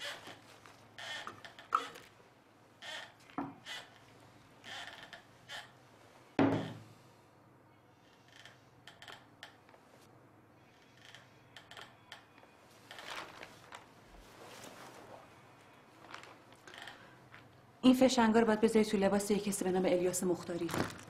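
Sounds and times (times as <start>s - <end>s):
bottle thunk on table: 6.4s - 6.8s
groceries clicking and rustling: 12.8s - 14.0s, 16.0s - 17.6s, 20.4s - 21.0s.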